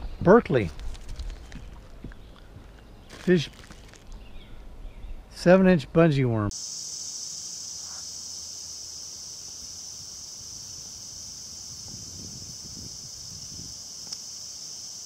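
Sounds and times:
insects droning: 0:06.5 - 0:15.0.

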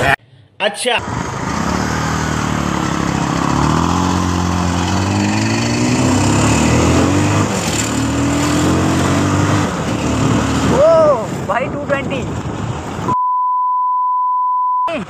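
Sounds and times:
motorcycle engine accelerating: 0:01.0 - 0:11.4.

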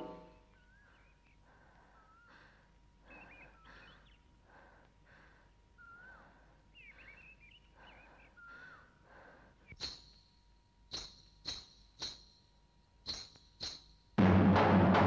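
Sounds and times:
soft breathy sounds: 0:00.5 - 0:09.8.

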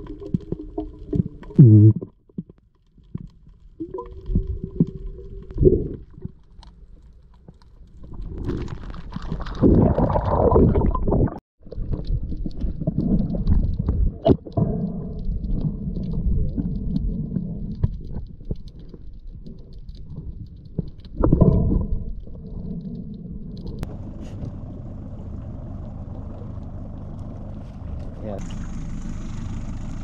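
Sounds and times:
underwater rumbling: 0:00.0 - 0:30.0
clicks and ticks: 0:11.9 - 0:24.6.

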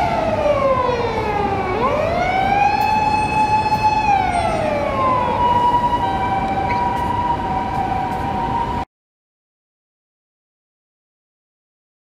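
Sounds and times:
city traffic rumble: 0:00.0 - 0:08.9
emergency vehicle siren: 0:00.0 - 0:08.9.

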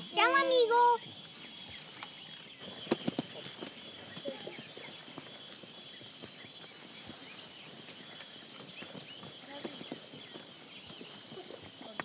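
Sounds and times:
insects hissing: 0:00.0 - 0:12.0
sharp clicks: 0:01.9 - 0:02.2.

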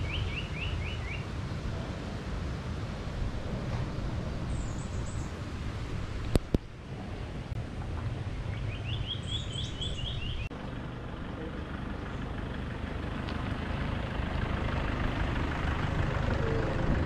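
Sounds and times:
bird chirping: 0:00.0 - 0:01.3, 0:04.4 - 0:05.4, 0:08.2 - 0:10.5
tyres on dirt: 0:00.0 - 0:17.0
vehicle engine approaching: 0:00.0 - 0:17.0.

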